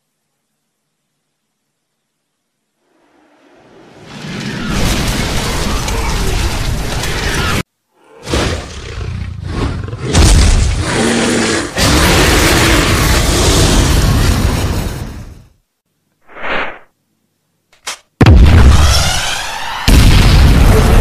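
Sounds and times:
dragon roar with deep rumbles: 8.0s - 14.3s.

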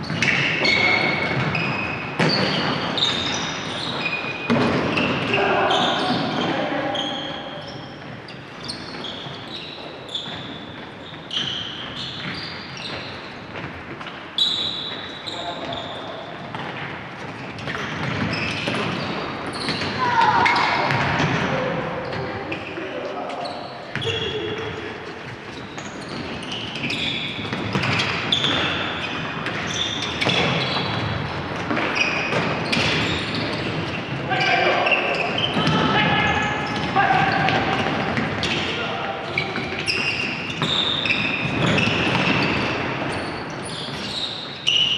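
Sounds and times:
shoes squeaking on gym floor: 0.0s - 21.2s, 22.0s - 44.9s.

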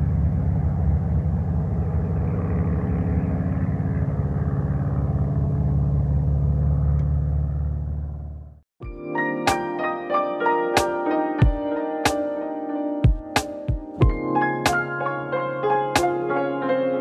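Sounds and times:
propeller aircraft droning overhead: 0.0s - 8.6s.

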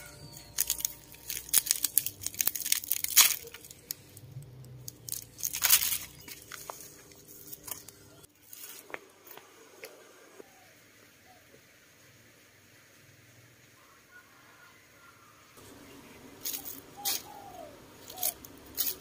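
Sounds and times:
leaves scraping on bamboo basket: 0.0s - 9.0s, 16.4s - 19.0s
pineapple leaves crackling and tearing: 0.1s - 8.9s, 16.4s - 17.4s, 18.0s - 19.0s.

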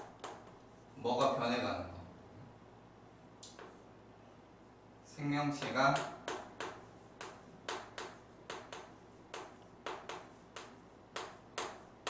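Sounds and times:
chalk tapping on a chalkboard: 0.0s - 0.6s, 3.5s - 3.8s, 5.5s - 11.9s.

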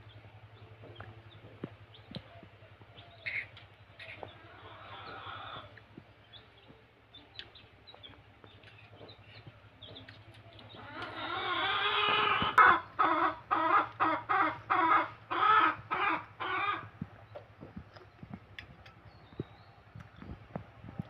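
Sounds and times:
chicken clucking: 0.6s - 21.0s.

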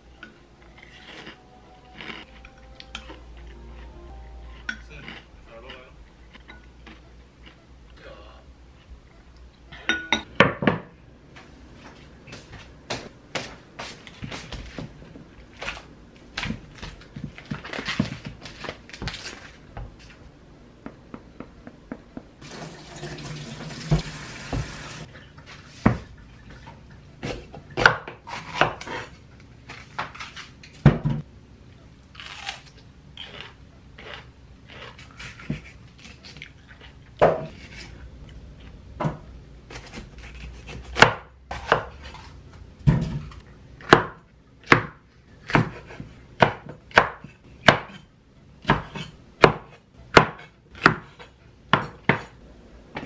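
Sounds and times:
running tap water: 22.4s - 25.1s.

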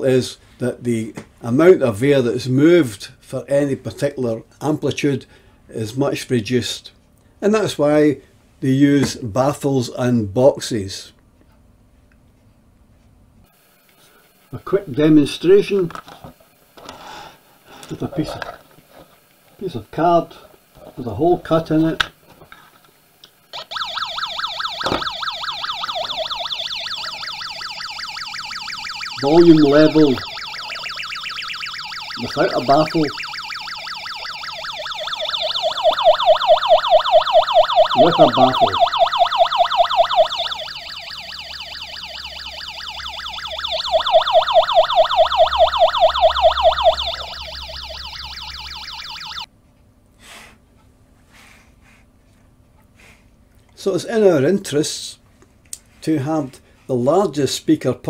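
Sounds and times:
warbling siren-like test tone: 23.5s - 49.5s.

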